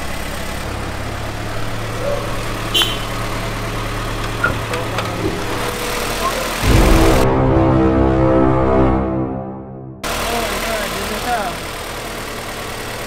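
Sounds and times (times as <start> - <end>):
car engine idling: 0.0 - 7.3, 10.0 - 13.0.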